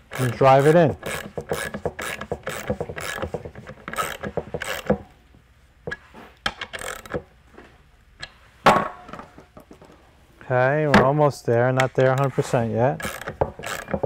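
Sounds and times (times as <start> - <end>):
socket ratchet clicking: 0.0 - 5.0, 6.5 - 7.3, 13.0 - 14.0.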